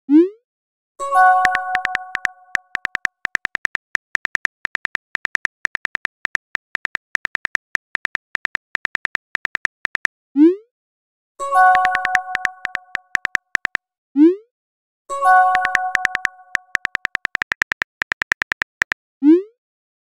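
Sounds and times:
phone keyboard typing clicks: 1.4s - 10.1s, 11.7s - 13.8s, 15.4s - 19.0s
notification chime: 11.6s - 13.0s.

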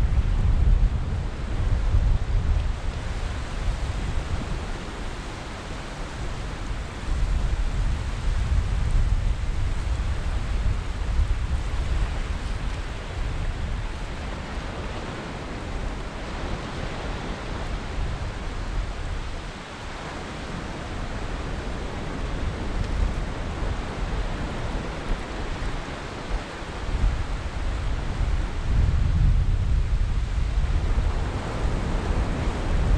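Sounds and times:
wind buffeting microphone: 0.0s - 32.9s
small waves washing on shore: 1.2s - 32.9s.

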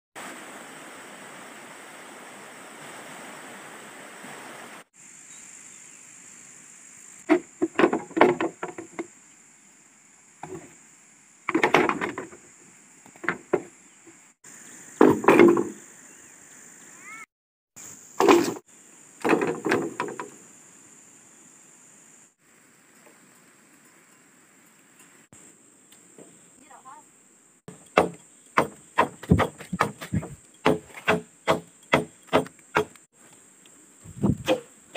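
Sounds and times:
steady rustling hiss: 0.2s - 15.1s, 17.8s - 34.9s
bamboo poles knocking: 7.3s - 9.1s, 11.5s - 12.4s, 13.1s - 13.7s, 15.0s - 15.8s, 19.2s - 20.3s, 27.7s - 33.0s, 34.2s - 34.7s.

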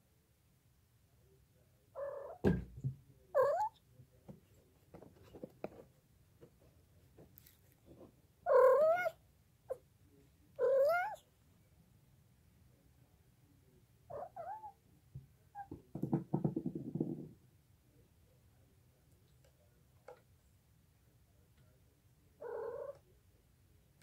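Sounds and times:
thump: 2.4s - 3.0s
cat meowing: 3.4s - 3.8s, 8.5s - 9.2s, 10.6s - 11.2s, 14.1s - 14.8s.

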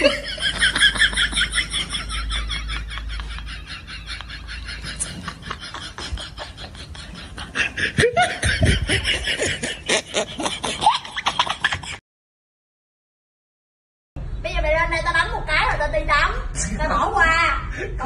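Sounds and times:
people laughing hard: 0.0s - 12.0s.

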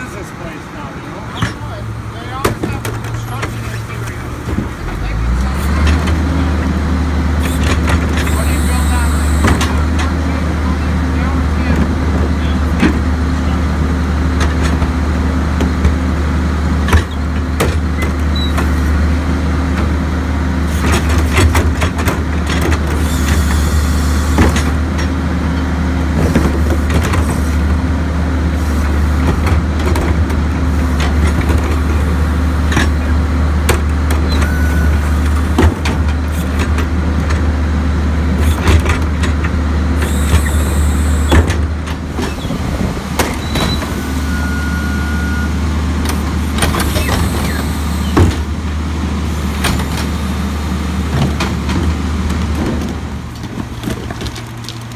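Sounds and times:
diesel engine running: 0.0s - 54.9s
clanks and bangs of carts: 1.3s - 6.2s, 16.8s - 18.8s, 20.7s - 23.0s, 35.2s - 37.5s, 38.4s - 40.6s.

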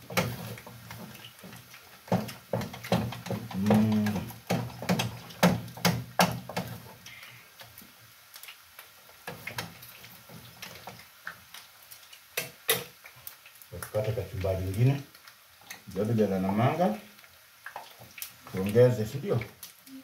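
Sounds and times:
person humming: 3.5s - 4.3s.

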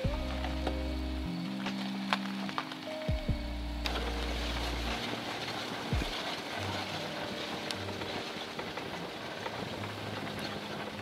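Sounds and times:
car engine hum: 0.0s - 11.0s
steady rushing noise: 0.0s - 11.0s.

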